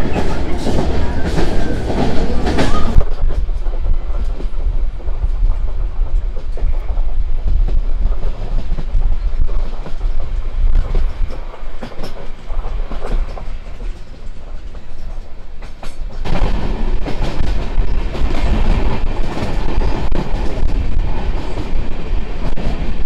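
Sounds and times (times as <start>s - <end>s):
train wheels rumbling on rails: 0.0s - 23.0s
sharp clicks from track: 5.2s - 16.3s.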